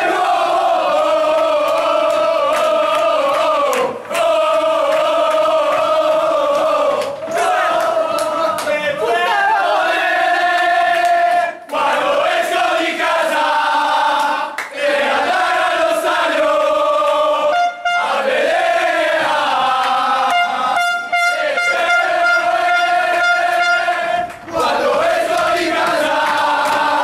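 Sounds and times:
men chanting and shouting: 0:00.0 - 0:20.8
horn blasting: 0:17.4 - 0:18.4, 0:20.2 - 0:24.3.

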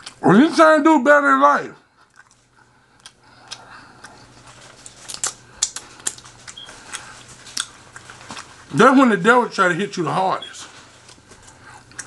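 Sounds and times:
chewing clicks and smacks: 0:00.0 - 0:00.2, 0:02.0 - 0:08.6, 0:11.0 - 0:12.0
faint low hum: 0:00.0 - 0:12.0.

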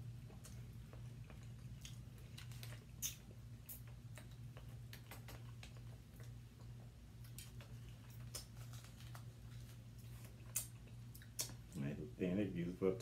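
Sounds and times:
steady low hum: 0:00.0 - 0:13.0
eating clicks and smacks: 0:00.2 - 0:11.8.

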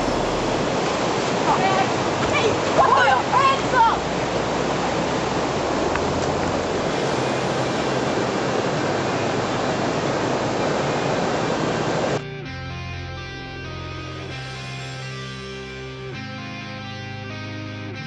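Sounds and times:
loud rushing noise: 0:00.0 - 0:02.6
guitar music: 0:12.2 - 0:18.0.

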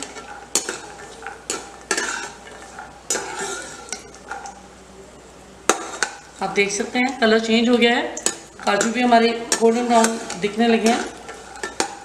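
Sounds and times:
spatula scraping a pan: 0:00.0 - 0:04.5, 0:08.5 - 0:12.0
light sizzle of frying: 0:00.0 - 0:12.0.

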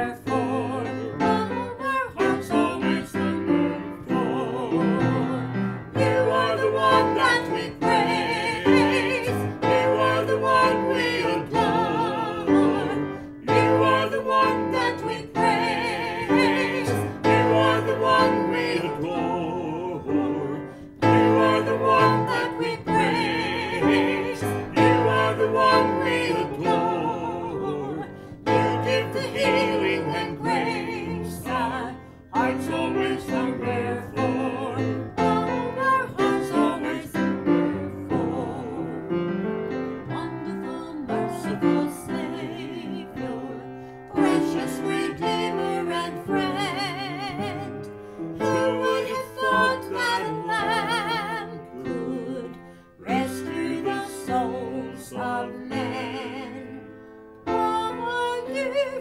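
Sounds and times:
man and woman singing: 0:00.0 - 0:56.9, 0:57.5 - 0:59.0
upright piano: 0:00.0 - 0:59.0
singers breathing: 0:28.1 - 0:28.4, 0:43.7 - 0:44.1, 0:47.9 - 0:48.4, 0:52.6 - 0:53.0.

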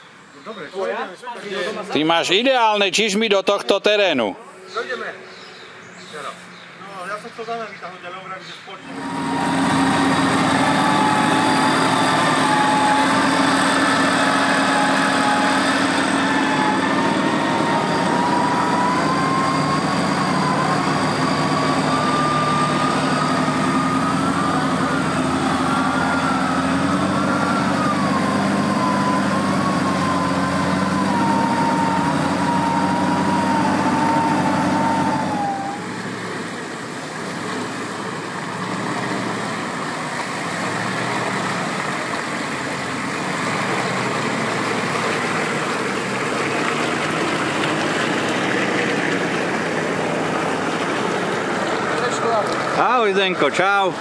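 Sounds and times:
off-road vehicle engine under load: 0:08.4 - 0:54.0
high wavering whine: 0:08.8 - 0:36.1.

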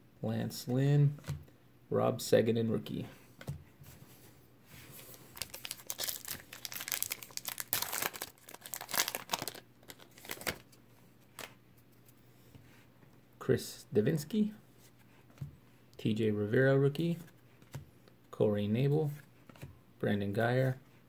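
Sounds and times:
card pack wrapper tearing and crinkling: 0:05.1 - 0:10.6.

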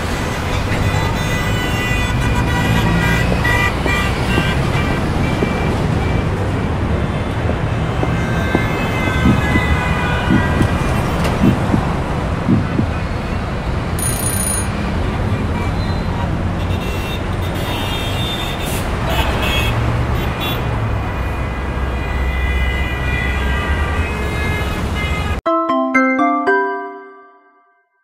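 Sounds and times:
traffic rumble: 0:00.0 - 0:17.6
dull knocks: 0:07.5 - 0:13.0
brief high tone: 0:25.4 - 0:27.9.

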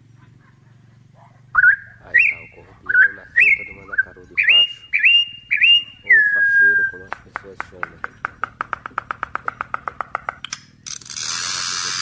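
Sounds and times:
bird whistling song: 0:01.6 - 0:07.2.

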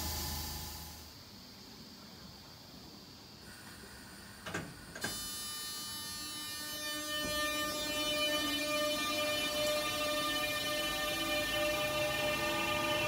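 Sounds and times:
electric traction whine: 0:00.0 - 0:01.1, 0:04.5 - 0:13.0
low train hum: 0:00.0 - 0:01.3, 0:05.7 - 0:13.0.

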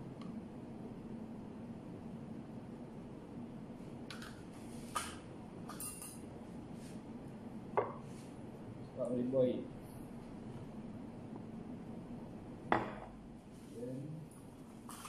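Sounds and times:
steady low hum: 0:00.0 - 0:15.0
utensils clinking: 0:05.7 - 0:06.2.

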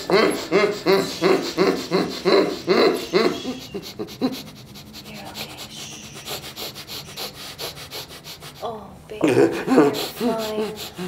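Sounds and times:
muffled rhythmic vocal sounds: 0:00.0 - 0:11.0.

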